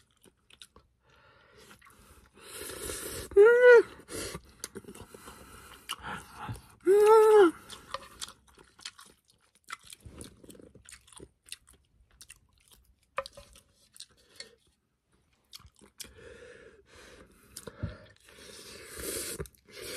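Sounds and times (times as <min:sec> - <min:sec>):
wet chewing and mouth clicks: 0:00.0 - 0:01.0, 0:04.3 - 0:16.2
person crying out: 0:03.4 - 0:04.0, 0:06.8 - 0:07.6
noodles slurped: 0:17.5 - 0:19.9.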